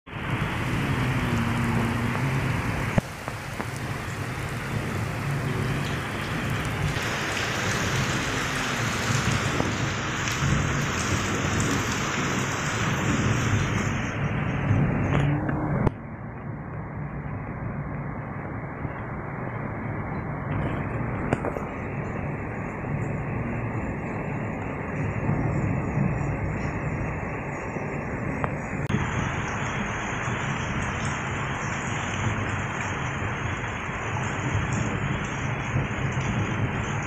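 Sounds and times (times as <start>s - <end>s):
heavy rain falling: 0.1s - 37.0s
low rumble: 3.6s - 31.5s.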